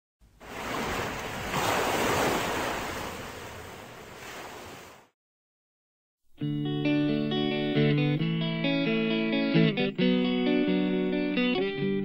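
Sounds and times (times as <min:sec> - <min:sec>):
waves breaking: 0:00.3 - 0:05.2.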